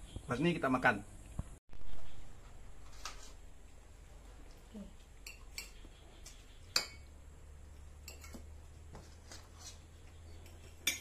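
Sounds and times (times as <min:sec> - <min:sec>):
cutlery clinking against dishes: 0:08.0 - 0:08.5, 0:10.4 - 0:11.0.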